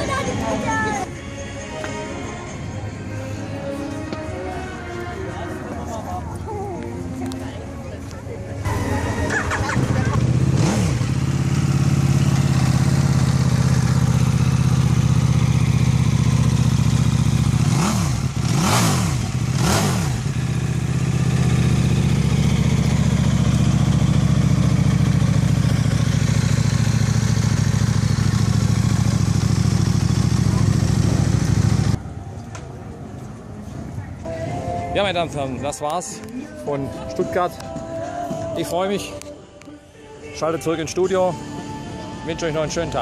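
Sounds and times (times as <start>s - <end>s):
motorcycle engine idling: 8.7s - 32.0s.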